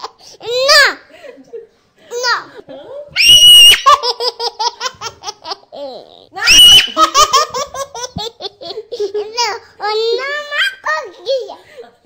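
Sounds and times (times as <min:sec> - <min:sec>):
baby laughing and squealing: 0:03.2 - 0:08.1.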